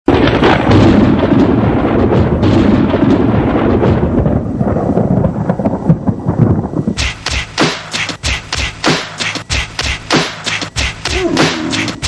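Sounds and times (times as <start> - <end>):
loud music with heavy drums: 7.0 - 12.0.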